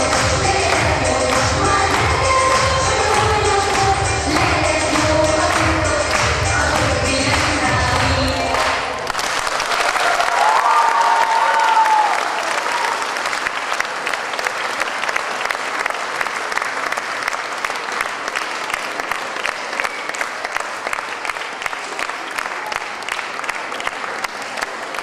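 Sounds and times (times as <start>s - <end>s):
audience clapping: 0.0s - 25.0s
audience cheering: 9.1s - 13.3s.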